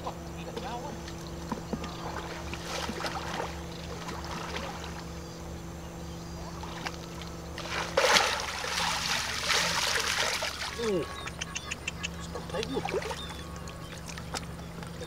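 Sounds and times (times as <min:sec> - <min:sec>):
steady low hum: 0:00.0 - 0:15.0
water splashing and sloshing: 0:00.6 - 0:05.2, 0:06.4 - 0:11.0, 0:12.4 - 0:15.0
water draining through basket: 0:07.6 - 0:10.9.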